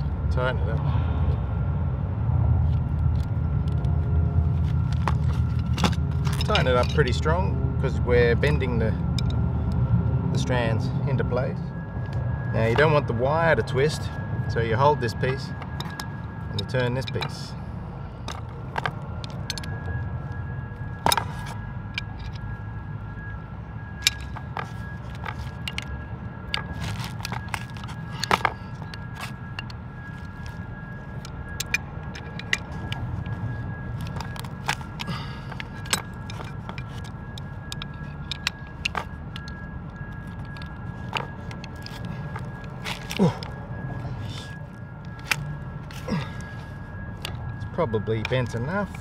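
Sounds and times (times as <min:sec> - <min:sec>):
steady low hum: 0:00.0 - 0:49.0
wrenches clinking on metal: 0:05.7 - 0:07.2.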